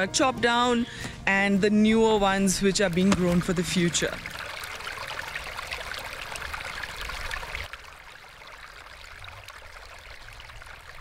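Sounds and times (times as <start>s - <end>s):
stream trickling and babbling: 1.5s - 11.0s.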